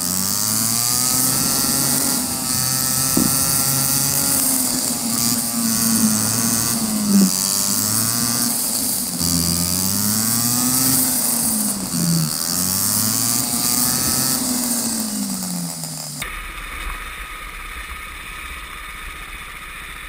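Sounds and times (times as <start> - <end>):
go-kart engine at speed: 0.0 - 20.0
wind rush on microphone: 0.8 - 12.4.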